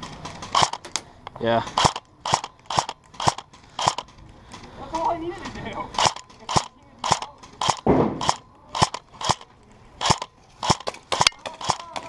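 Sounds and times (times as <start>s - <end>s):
dull thump: 7.8s - 8.3s.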